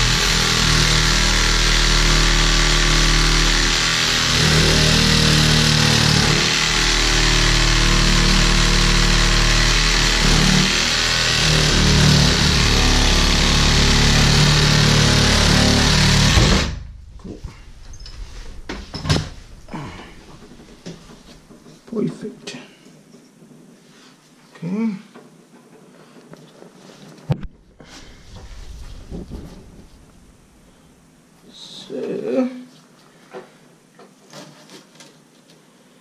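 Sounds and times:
cordless drill running under load: 0.0 - 16.6.

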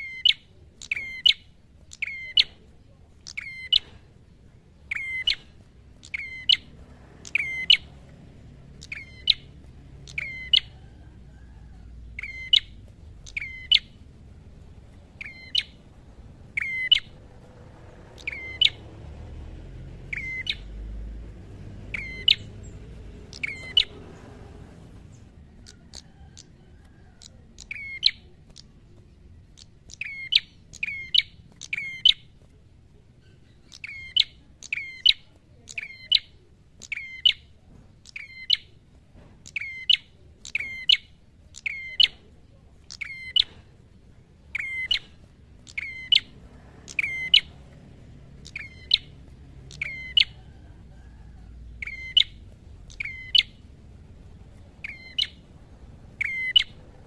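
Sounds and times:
bird calling sharp notes: 3.2 - 3.9, 4.8 - 8.0, 16.4 - 17.2, 20.0 - 20.8, 44.5 - 47.6, 51.8 - 53.7, 56.1 - 56.9.

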